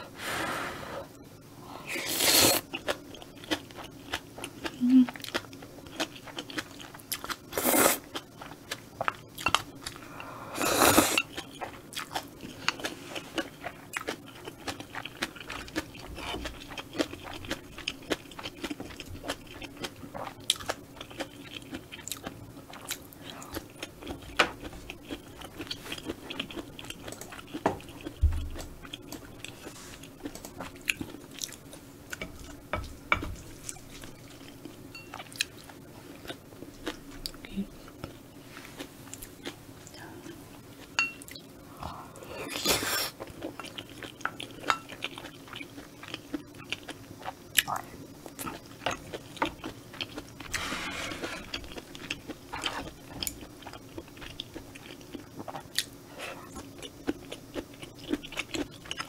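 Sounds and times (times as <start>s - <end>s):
slurping noodles: 1.9s - 2.7s, 10.6s - 11.3s
wet chewing and crunching: 2.5s - 10.2s, 11.1s - 32.6s, 42.6s - 50.6s, 51.2s - 59.0s.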